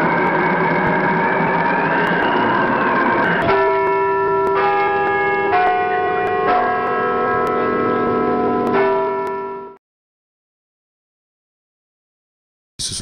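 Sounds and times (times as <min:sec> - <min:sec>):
bell chimes: 0:00.0 - 0:09.8.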